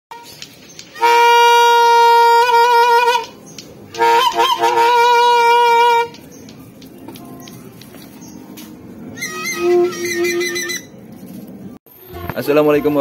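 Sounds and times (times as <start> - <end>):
bottle trumpet horn blasts: 1.0 - 3.3, 4.0 - 6.1, 9.2 - 10.9.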